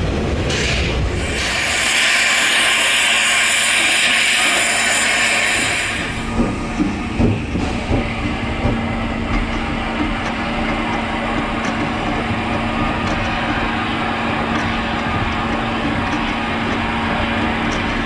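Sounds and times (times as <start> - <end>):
steam train running: 0.0 - 18.0
train wheels knocking: 3.6 - 18.0.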